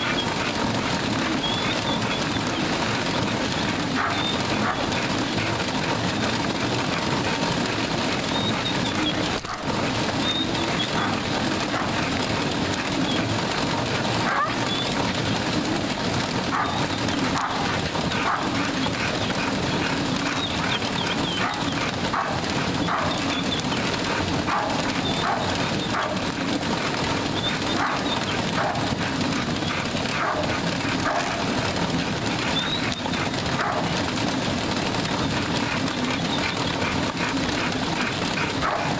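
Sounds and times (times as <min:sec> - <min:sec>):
dog panting heavily: 0:00.0 - 0:38.9
treadmill rumble: 0:00.0 - 0:38.9.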